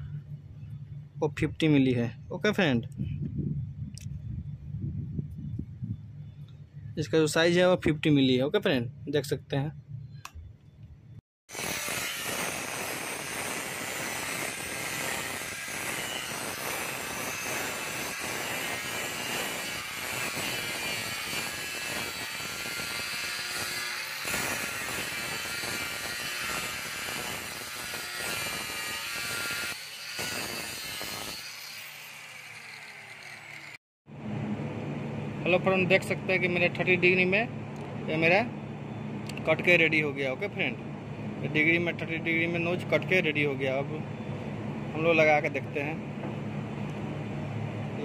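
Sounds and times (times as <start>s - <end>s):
angle grinder cutting steel: 11.5s - 33.8s
grinder winding down whine: 11.5s - 33.8s.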